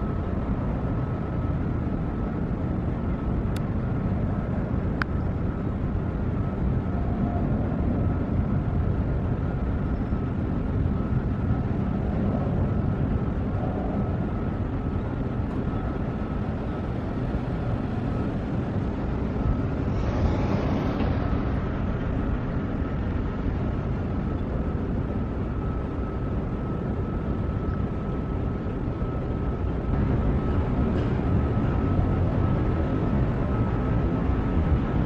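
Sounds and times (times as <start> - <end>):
distant jet engines rumbling: 0.0 - 35.0
hiss of jet engines: 17.2 - 23.4.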